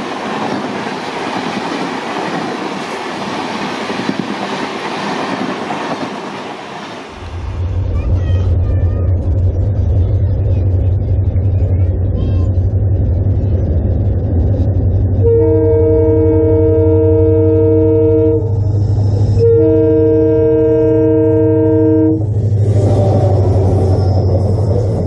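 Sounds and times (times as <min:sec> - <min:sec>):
rushing noise: 0:00.0 - 0:17.4, 0:22.1 - 0:25.0
locomotive low drone: 0:00.0 - 0:25.0
locomotive air horn blasts: 0:15.2 - 0:18.5, 0:19.3 - 0:22.2.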